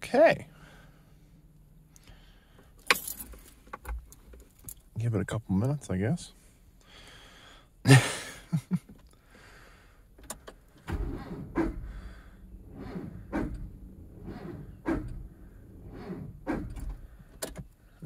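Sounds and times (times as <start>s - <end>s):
starter cranking engine: 10.8s - 17.5s.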